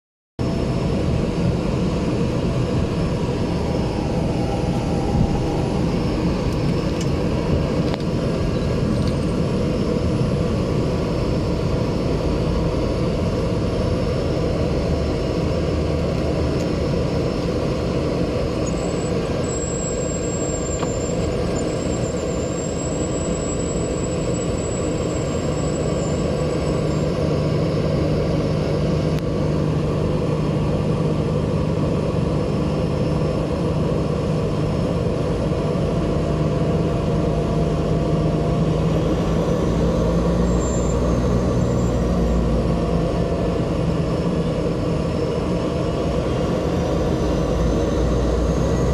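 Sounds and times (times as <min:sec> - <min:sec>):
turboprop engine drone: 0:00.4 - 0:48.9
faint high whine: 0:00.5 - 0:12.6.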